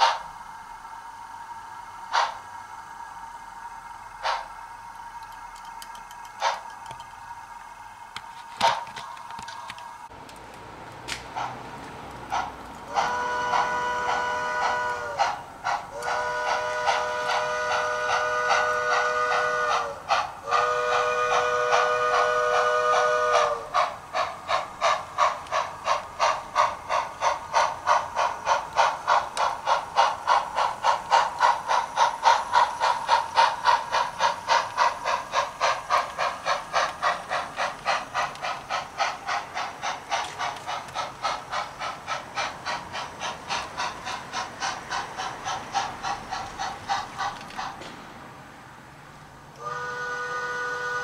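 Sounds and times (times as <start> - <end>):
steam locomotive exhaust chuffs: 0.0 - 51.0
steam whistle: 12.9 - 23.8, 49.6 - 51.0.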